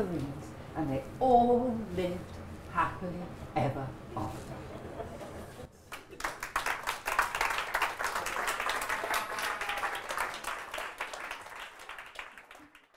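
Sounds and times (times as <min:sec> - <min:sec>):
audience applauding: 0:05.9 - 0:12.9.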